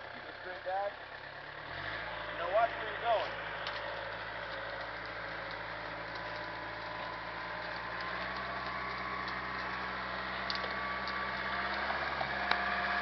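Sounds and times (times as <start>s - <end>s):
tractor engine running: 0.0s - 13.0s
sharp crack: 3.1s - 13.0s
light ticks: 3.6s - 9.8s.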